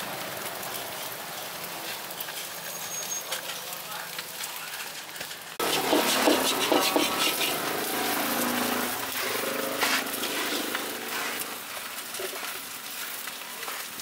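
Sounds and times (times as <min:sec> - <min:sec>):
engine humming: 0:05.6 - 0:12.3
spatula scraping a metal wok: 0:05.6 - 0:12.4.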